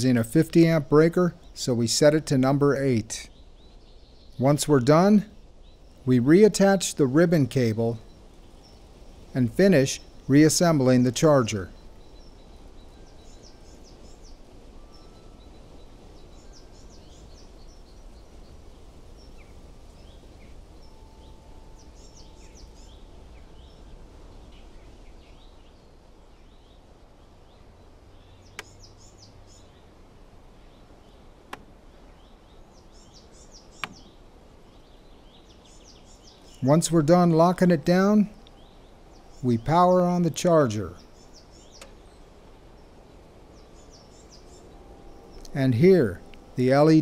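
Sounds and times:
small birds chirping: 0.0 - 47.0
sharp clicks: 33.8 - 34.1, 41.8 - 42.0.

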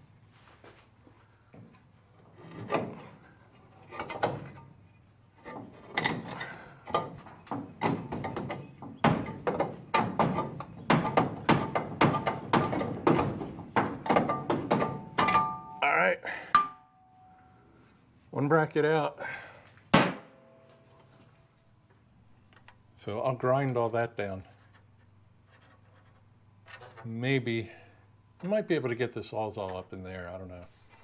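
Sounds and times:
metal knocks and scrapes: 1.6 - 15.8.

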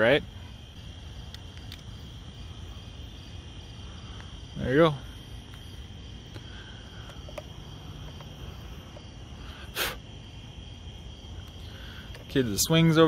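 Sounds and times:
crickets chirping: 0.0 - 13.0
short puff of noise: 9.6 - 10.0.

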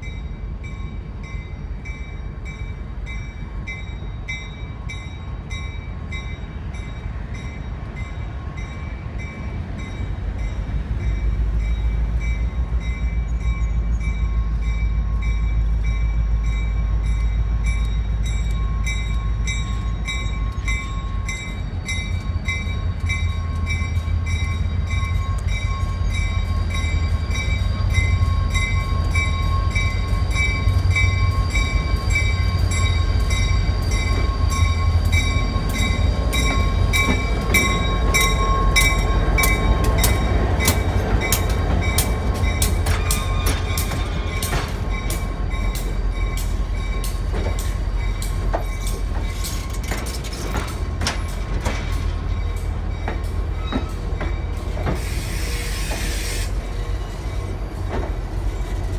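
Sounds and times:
diesel locomotive rumbling: 0.0 - 58.9
bells ringing: 11.6 - 49.7.

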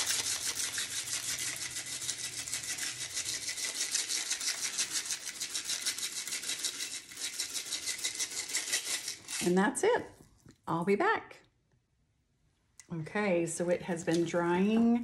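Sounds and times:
sprinkles rattling in plastic shaker: 0.0 - 9.6.

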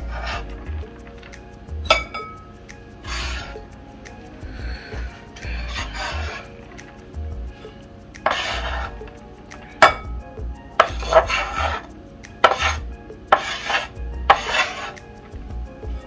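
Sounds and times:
knife chopping on wooden board: 12.4 - 12.8.

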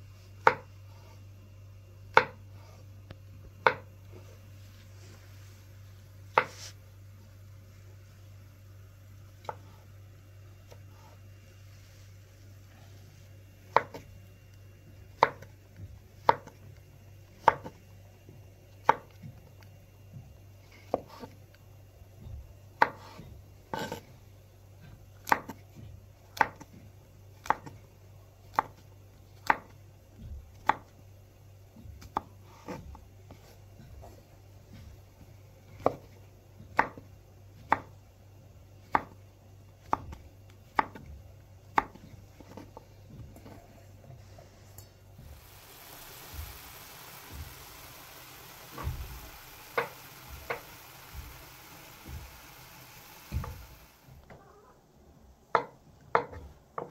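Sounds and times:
knife chopping on cutting board: 0.4 - 0.7, 2.1 - 2.4, 3.6 - 3.9, 6.3 - 6.6, 13.7 - 14.1, 15.2 - 15.5, 16.2 - 16.6, 17.4 - 17.8, 25.2 - 25.8, 39.8 - 41.1, 41.7 - 42.7.

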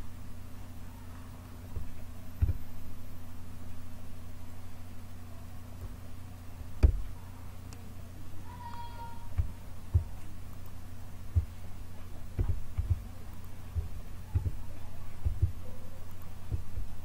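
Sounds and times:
steady low hum: 0.0 - 17.0
dull desk thumps: 2.4 - 2.6, 6.8 - 7.1, 12.4 - 13.0.

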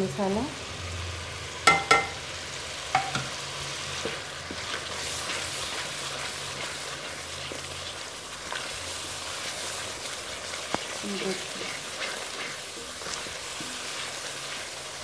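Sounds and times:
food sizzling in oil: 0.0 - 15.0
sharp ringing knock: 1.7 - 2.2
wooden spoon stirring: 4.0 - 15.0.

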